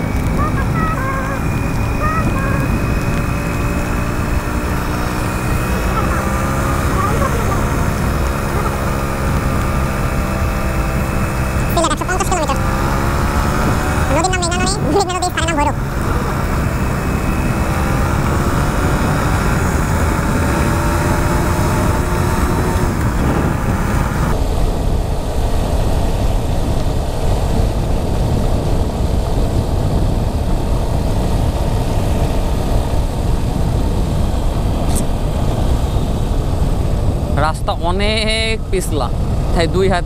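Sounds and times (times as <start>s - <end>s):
whining note: 0.0s - 24.4s
motorbike engine running: 0.0s - 37.4s
wind rush on microphone: 0.0s - 40.0s.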